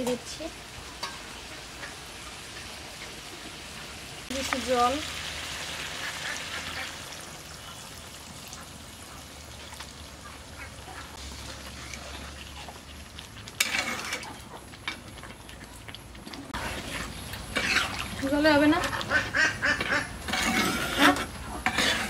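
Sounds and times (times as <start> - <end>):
curry sizzling in a pan: 0.0 - 22.0
metal spatula scraping a pan: 13.5 - 15.0, 16.5 - 22.0.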